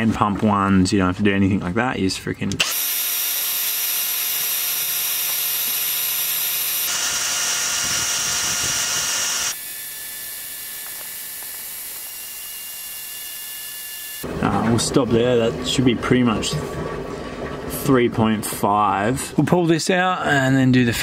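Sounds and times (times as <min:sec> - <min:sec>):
electric drill running a pump: 0:02.6 - 0:14.3.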